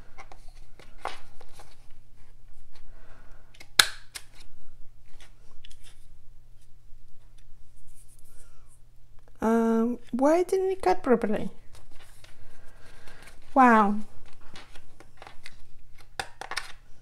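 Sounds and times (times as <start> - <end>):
paper handling: 11.6 - 16.8.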